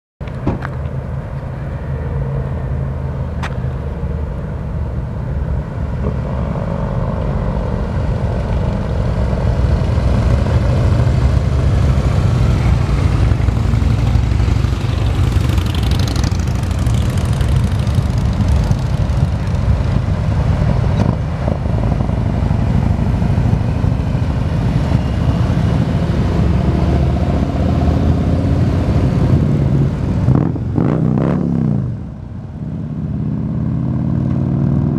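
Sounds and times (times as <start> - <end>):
motorcycle engines rumbling: 0.2 - 34.9.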